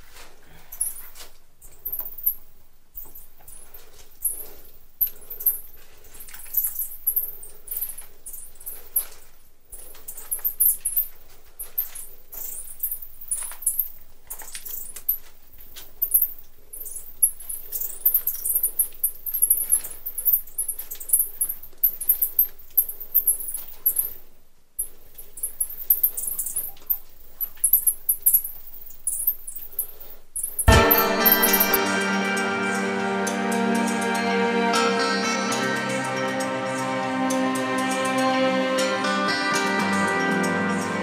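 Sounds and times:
music: 30.7s - 41.0s.

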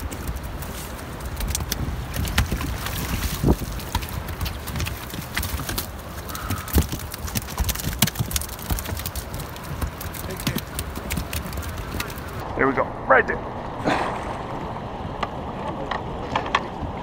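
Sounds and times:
knocks and clunks in boat: 1.4s - 12.4s
steady low rumble: 9.5s - 17.0s.

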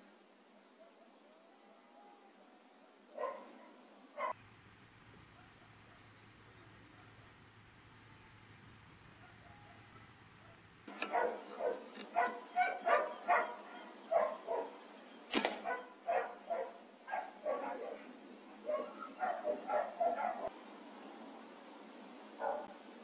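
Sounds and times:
dog barking: 3.1s - 4.4s, 5.3s - 7.4s, 9.1s - 14.8s, 15.6s - 20.5s, 22.4s - 22.8s
air rifle shot: 15.3s - 15.8s.

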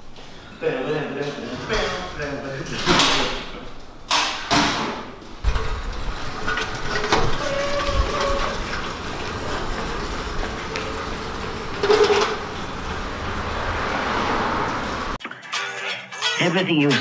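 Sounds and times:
sack truck wheels rumbling: 5.2s - 15.2s
metal keg clank: 11.6s - 12.6s.

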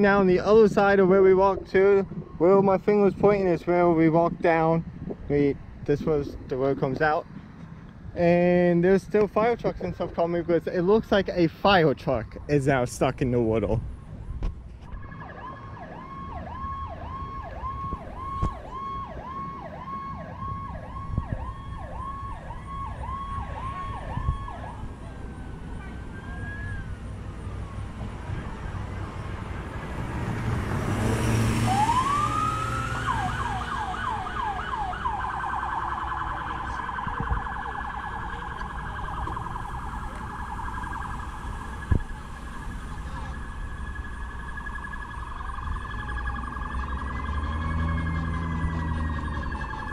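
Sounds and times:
siren yelping: 14.9s - 29.8s, 31.3s - 49.9s
vehicle passing: 15.2s - 49.9s.

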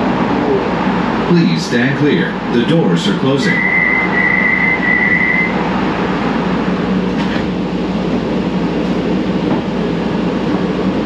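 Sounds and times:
train cabin rumble: 0.0s - 11.0s
door-closing warning tone: 3.4s - 5.6s.

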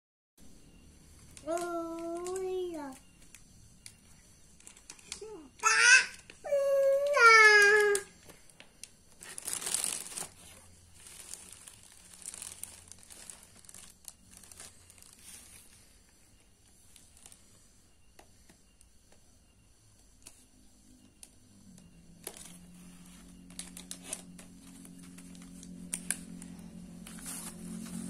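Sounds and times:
plastic bag crinkling: 8.8s - 15.8s, 22.2s - 28.0s.

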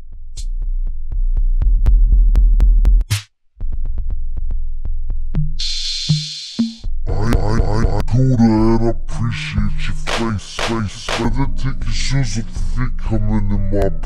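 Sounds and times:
electronic music with drum-machine beat: 5.5s - 8.0s, 10.1s - 11.3s.

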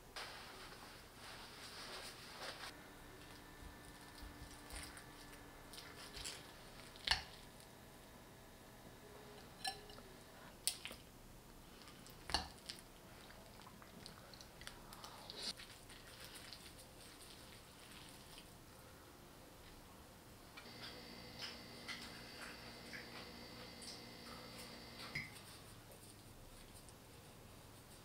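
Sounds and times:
cutlery clinking on plates: 9.6s - 10.0s.

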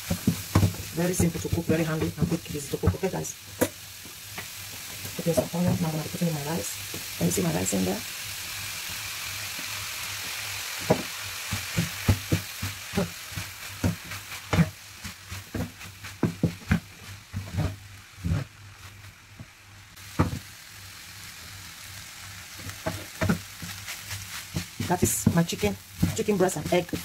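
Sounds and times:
wooden spatula scraping a pan: 0.0s - 3.8s, 10.8s - 19.0s, 22.6s - 27.0s
rice sizzling in a pan: 0.0s - 27.0s.

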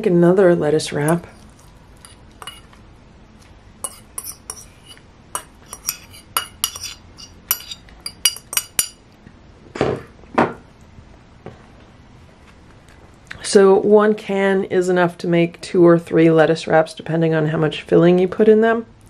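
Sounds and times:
fork clinking on ceramic plates: 2.1s - 2.7s, 3.8s - 9.0s.

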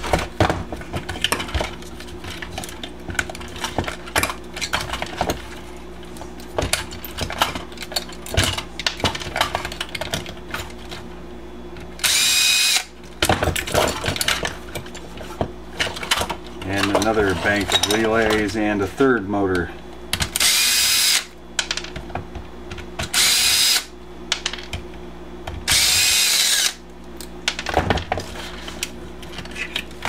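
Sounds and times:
cordless drill whirring: 12.0s - 12.9s, 20.4s - 21.3s, 23.1s - 23.9s, 25.7s - 26.8s.

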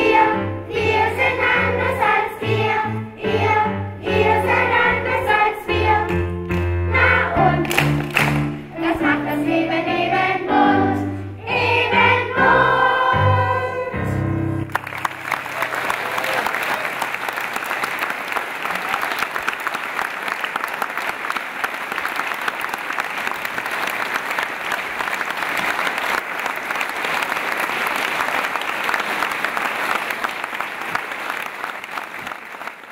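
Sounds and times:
large audience applauding: 7.4s - 8.7s, 14.6s - 32.9s.

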